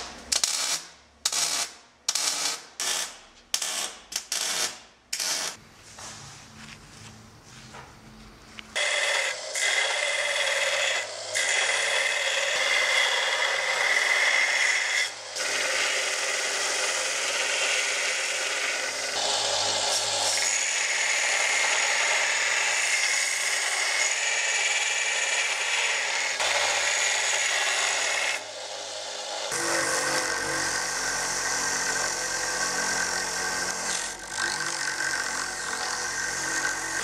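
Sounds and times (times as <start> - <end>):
belt grinder grinding metal: 8.8 - 37.0.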